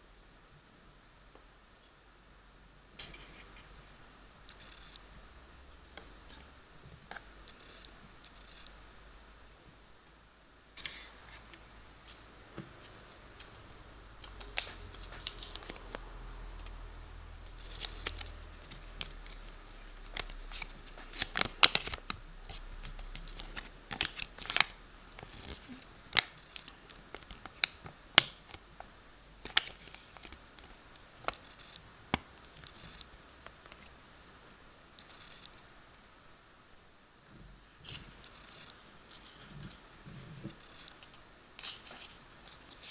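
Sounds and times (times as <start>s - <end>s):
paper leaflet crackling and rustling: 10.8s - 16.8s, 17.4s - 28.6s, 29.4s - 33.9s, 40.4s - 42.9s
paper snapping: 14.2s - 16.0s.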